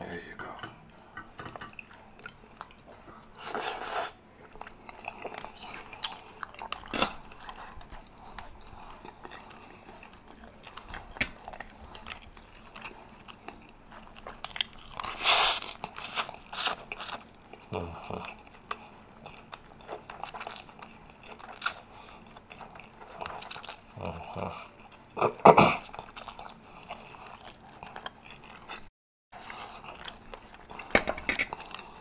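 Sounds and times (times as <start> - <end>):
chewing food: 0.9 - 32.0
slurping noodles: 3.3 - 4.2, 15.0 - 18.2.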